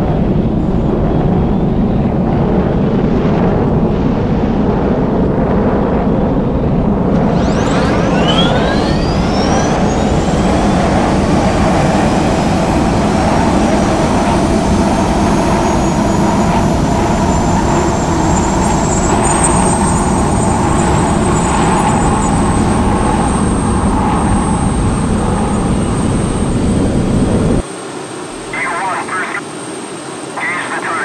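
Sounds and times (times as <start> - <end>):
jet engines roaring: 0.0 - 31.0
thin high whine: 7.0 - 31.0.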